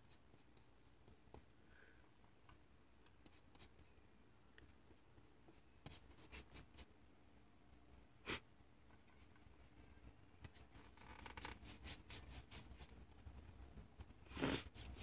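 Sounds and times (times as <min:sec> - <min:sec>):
paintbrush stroking on paper: 0:09.0 - 0:15.0.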